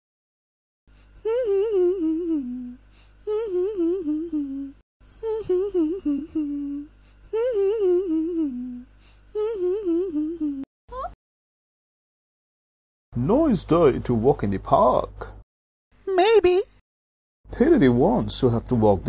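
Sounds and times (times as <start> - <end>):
person humming a tune: 1.2 - 11.2.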